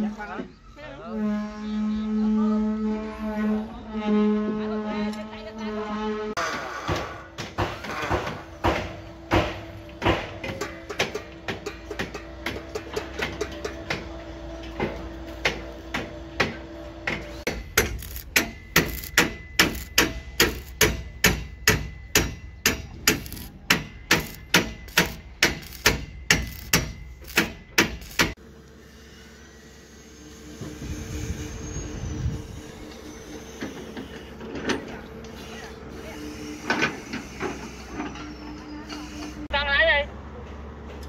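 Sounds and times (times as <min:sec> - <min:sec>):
hammer striking steel: 0:06.5 - 0:14.1, 0:14.8 - 0:28.4.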